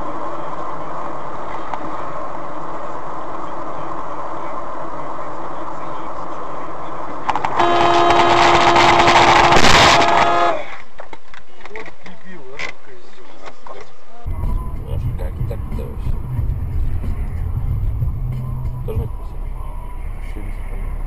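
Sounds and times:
vehicle road and engine noise: 0.0s - 21.0s
long horn blast: 7.3s - 10.8s.

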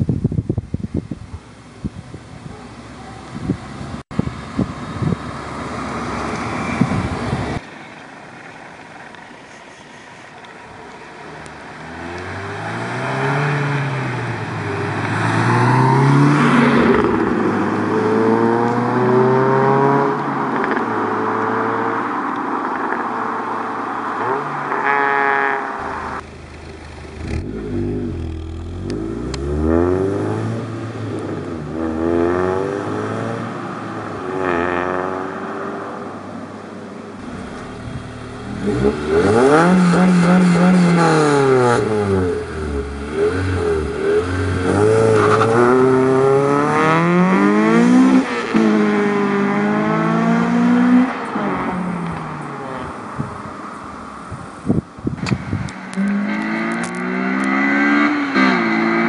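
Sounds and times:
car engine accelerating hard: 24.2s - 36.0s, 37.2s - 53.3s, 55.9s - 59.0s.

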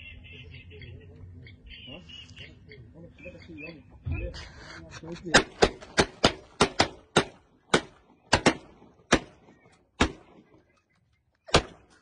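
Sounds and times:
shotguns firing: 5.3s - 10.6s, 11.5s - 12.0s.

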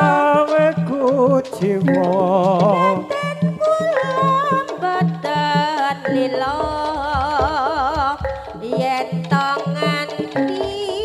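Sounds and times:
drum beating steady rhythm: 0.0s - 11.0s.

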